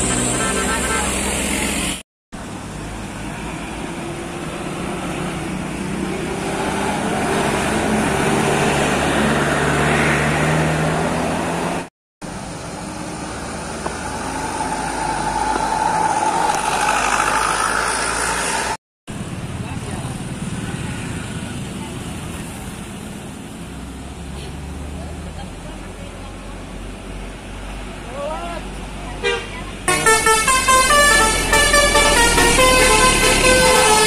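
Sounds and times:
vehicle engine with rising whine: 0:00.0 - 0:21.6
diesel bus engine passing: 0:00.0 - 0:34.0.

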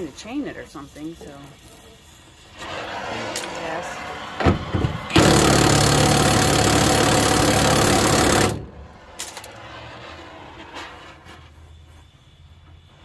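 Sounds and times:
cutting torch flame hiss: 0:00.0 - 0:05.1
impact wrench hammering: 0:04.4 - 0:08.8.

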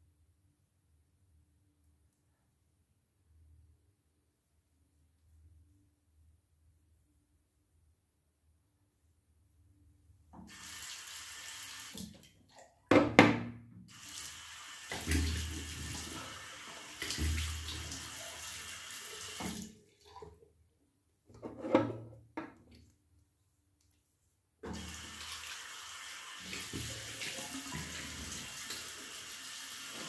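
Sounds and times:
tap running into sink: 0:17.0 - 0:17.7.

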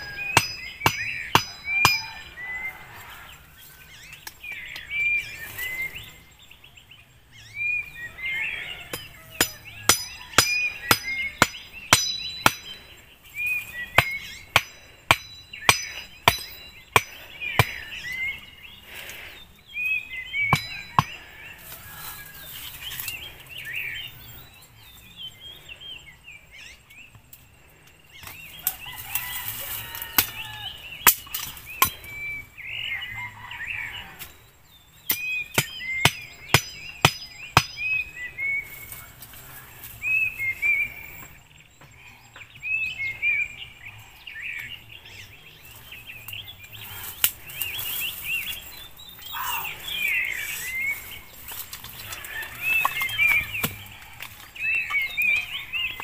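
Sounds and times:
small birds chirping: 0:00.0 - 0:56.0
machete chopping wooden stake: 0:52.7 - 0:53.9.

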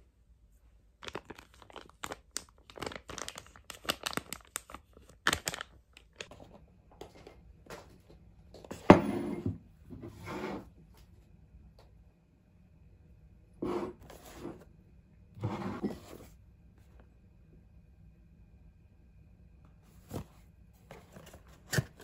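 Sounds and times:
packaging crinkling and tearing: 0:01.0 - 0:06.3.

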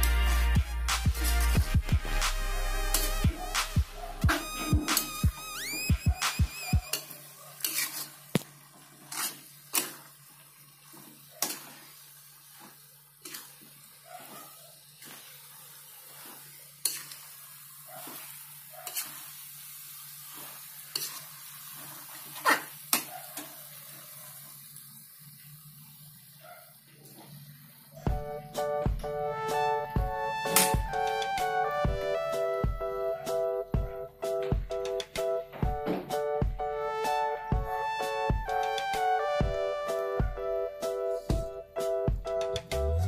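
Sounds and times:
metal spatula scraping a wok: 0:01.1 - 0:01.6, 0:02.8 - 0:03.3, 0:06.9 - 0:08.4, 0:09.0 - 0:10.1, 0:10.8 - 0:23.5
faint sizzle: 0:02.6 - 0:33.7.

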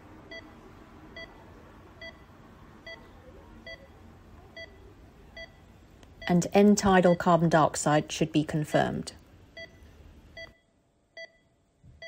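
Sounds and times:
patient monitor beeping: 0:00.2 - 0:01.4, 0:02.0 - 0:03.9, 0:04.5 - 0:05.6, 0:09.5 - 0:12.0.

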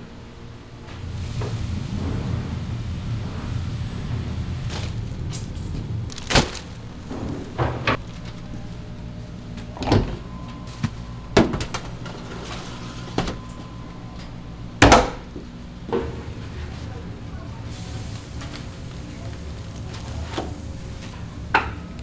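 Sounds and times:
steady low hum: 0:00.0 - 0:22.0
knocks and clunks: 0:00.9 - 0:08.2.

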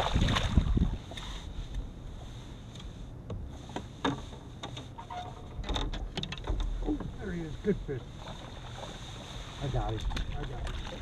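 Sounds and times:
faint clicks and knocks on boat: 0:00.0 - 0:11.0
wind rumble on microphone: 0:00.0 - 0:11.0.

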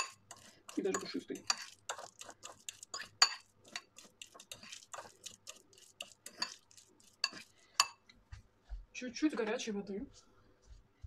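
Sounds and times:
fork clinking and scraping in bowl: 0:00.0 - 0:08.1.

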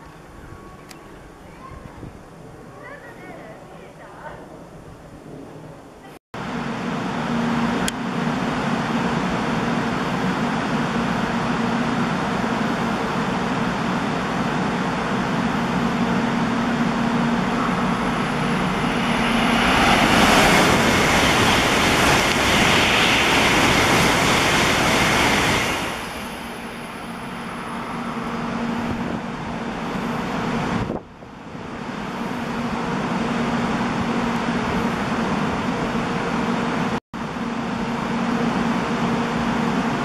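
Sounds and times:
high-speed train rushing past: 0:00.0 - 0:40.0
low steady train hum: 0:00.0 - 0:40.0.

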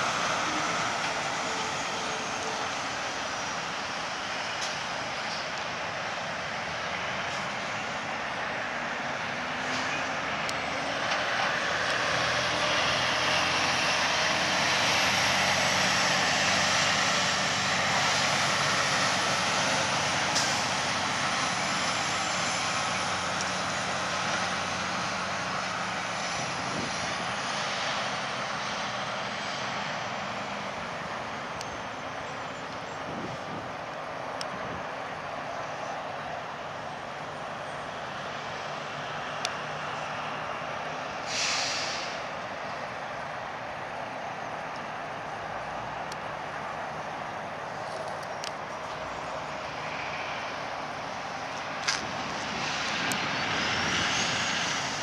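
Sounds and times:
semi truck driving past: 0:00.0 - 0:55.0
traffic rumble: 0:00.0 - 0:55.0.

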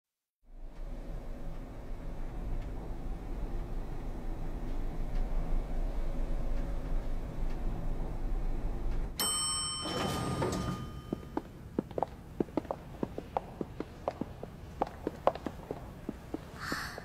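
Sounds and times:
low steady hum: 0:00.5 - 0:17.0
elevator doors sliding open: 0:00.9 - 0:11.4
elevator chime: 0:09.2 - 0:11.7
footsteps on hard floor: 0:11.1 - 0:17.0.

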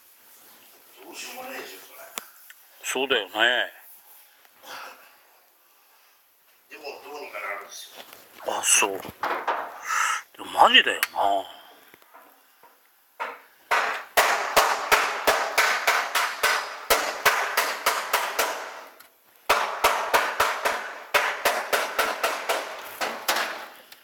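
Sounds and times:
rapid sharp knocks: 0:13.2 - 0:23.8.

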